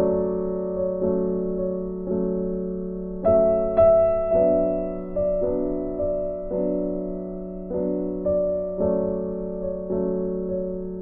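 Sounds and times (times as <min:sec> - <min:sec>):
slow piano music: 0:00.0 - 0:11.0.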